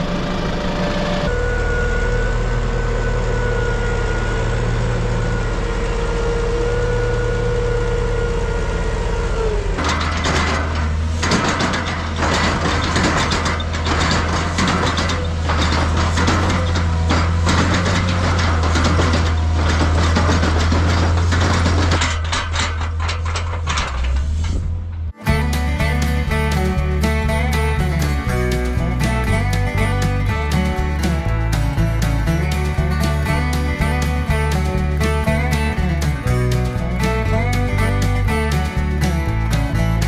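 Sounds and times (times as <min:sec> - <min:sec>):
large engine droning: 0:00.0 - 0:40.0
machine clatter under load: 0:09.8 - 0:24.6.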